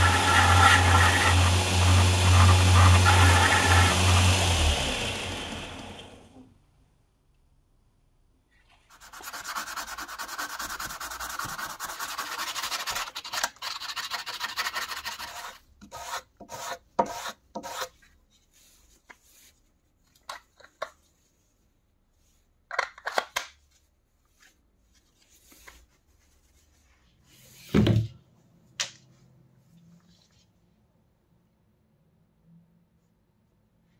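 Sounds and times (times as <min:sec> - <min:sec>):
plastic scraping on belt grinder: 0:00.0 - 0:06.1
thump: 0:27.7 - 0:28.2.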